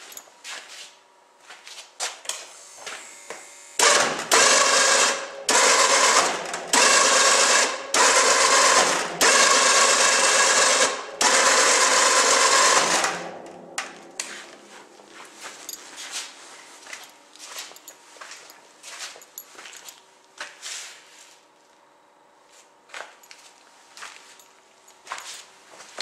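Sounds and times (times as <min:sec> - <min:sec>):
electric winch whining: 0:03.8 - 0:13.5.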